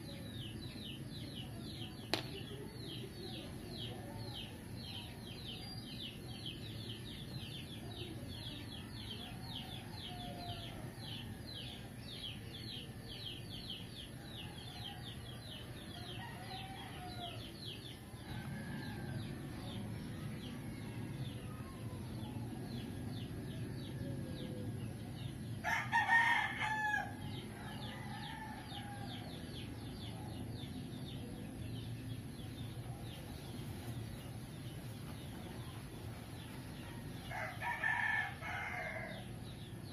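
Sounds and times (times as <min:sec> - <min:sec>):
steady low hum: 0:00.0 - 0:39.9
rooster crowing: 0:16.0 - 0:17.5, 0:25.6 - 0:29.4, 0:37.2 - 0:39.3.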